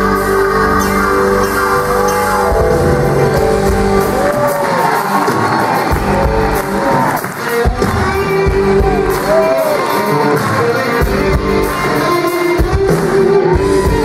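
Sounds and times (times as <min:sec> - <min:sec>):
band playing pop-rock song: 0:00.0 - 0:14.0.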